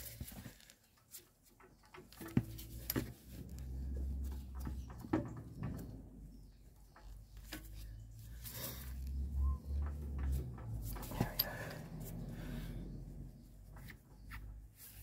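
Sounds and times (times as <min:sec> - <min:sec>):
wheel brace metal clicks and knocks: 0:00.0 - 0:12.4
low drone: 0:08.6 - 0:13.7.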